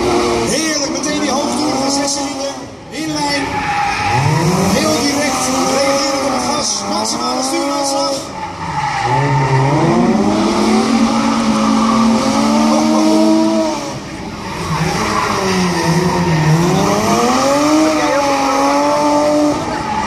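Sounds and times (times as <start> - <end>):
car engines revving: 0.0 - 20.0
tyres skidding: 0.0 - 20.0.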